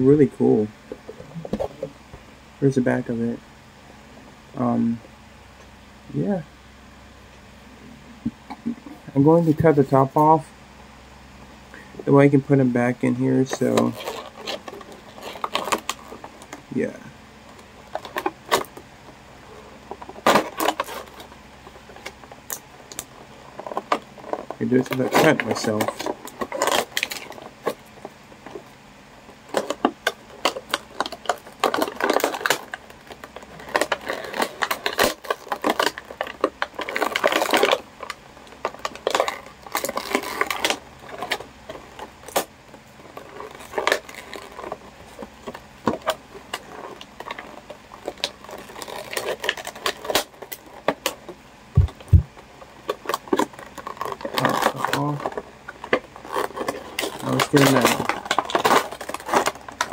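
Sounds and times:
plastic crinkling: 13.4 - 16.6, 19.8 - 28.6, 29.4 - 59.9.

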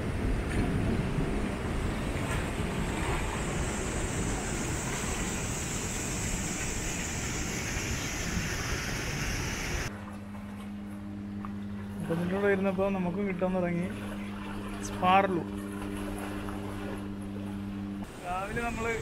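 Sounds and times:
wind buffeting microphone: 0.0 - 9.9.

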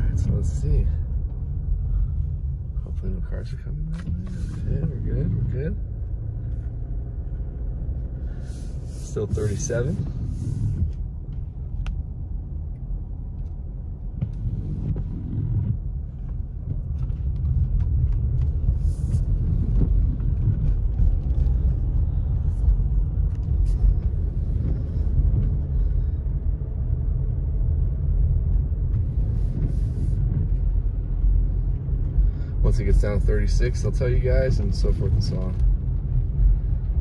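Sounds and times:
tyres on wet pavement: 0.0 - 26.6
car engine: 0.0 - 37.0.

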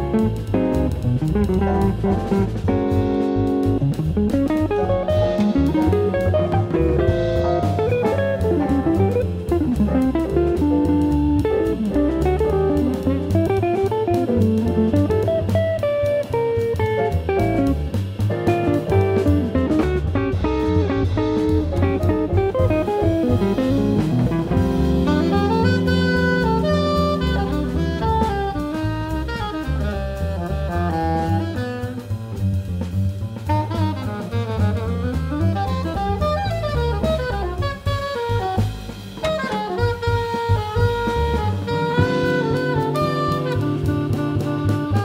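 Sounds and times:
electric guitar: 0.0 - 29.6, 39.2 - 45.0
alto saxophone: 0.0 - 45.0
drum kit: 0.0 - 45.0
upright bass: 0.0 - 45.0.

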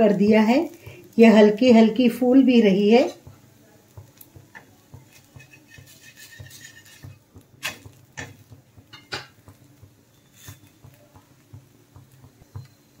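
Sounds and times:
metal spatula scraping iron griddle: 5.1 - 9.3, 10.1 - 10.8.

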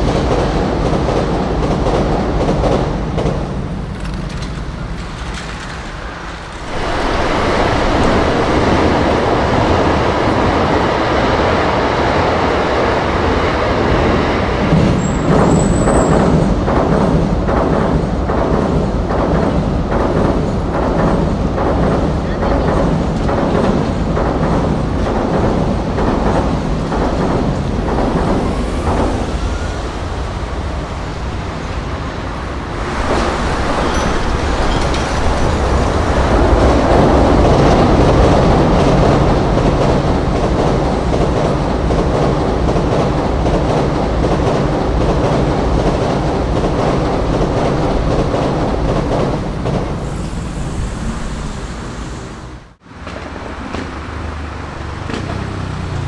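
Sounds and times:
train wheels clattering over rails: 0.0 - 56.0
road traffic: 22.2 - 39.6, 49.6 - 56.0.

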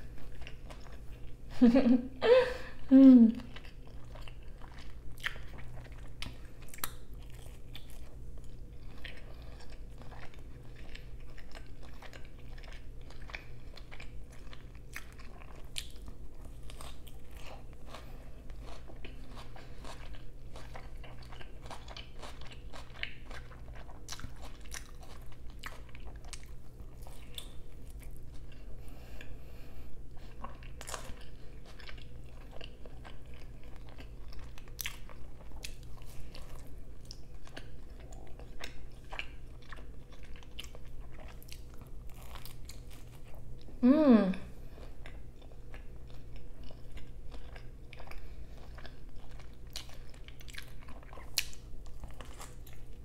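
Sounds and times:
chewing crunches: 0.0 - 1.4, 3.4 - 29.3, 30.1 - 43.7, 44.7 - 53.0
steady low hum: 0.0 - 53.0.

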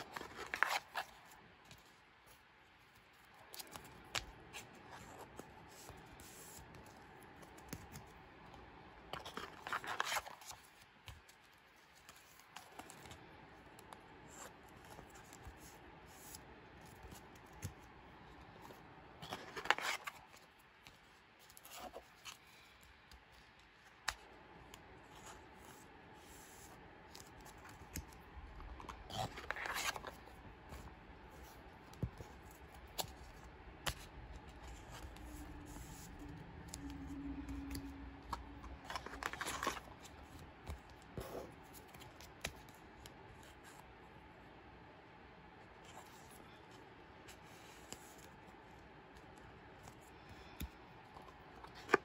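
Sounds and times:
plastic sleeves rustling and scraping: 0.0 - 8.2, 9.1 - 13.3, 14.2 - 24.3, 25.0 - 43.9.

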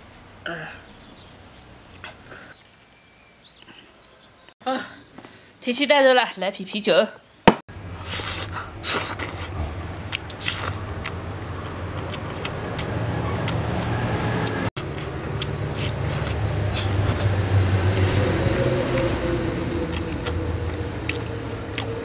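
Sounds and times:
wet sucking and biting: 8.0 - 22.0.

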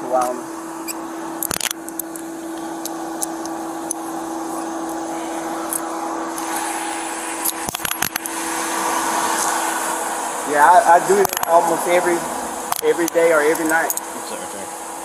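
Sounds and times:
idling vehicle engine and fan hum: 0.0 - 15.0
sharp clicks: 11.2 - 11.5.

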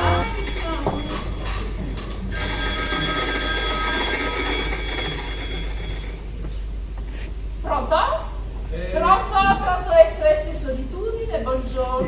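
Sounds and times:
telephone ringing: 0.0 - 6.4.

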